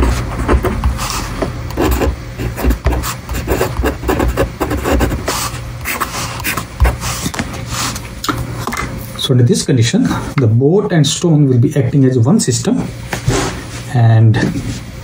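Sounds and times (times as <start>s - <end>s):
pen scratching on paper: 0.0s - 7.4s.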